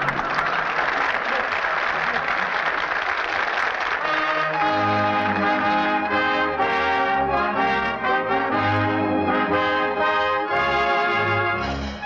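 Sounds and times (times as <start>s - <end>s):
brass-led orchestral chords: 4.0s - 12.0s.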